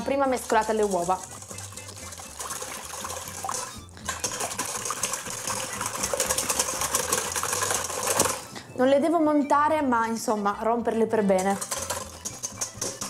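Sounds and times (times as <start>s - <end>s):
eggs sloshing: 0.0s - 8.6s, 11.4s - 13.0s
whisk clicking against metal bowl: 0.1s - 8.4s, 11.3s - 13.0s.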